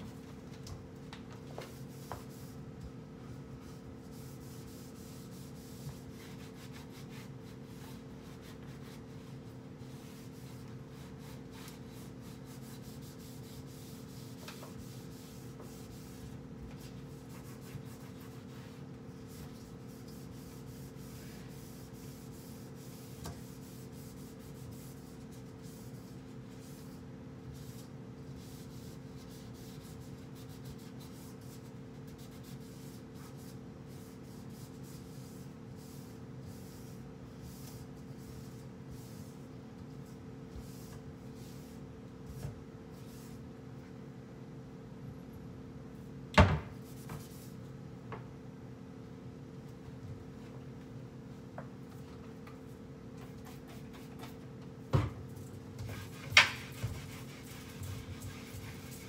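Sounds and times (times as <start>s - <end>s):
cloth wiping cabinet doors: 1.3s - 43.4s, 55.8s - 59.0s.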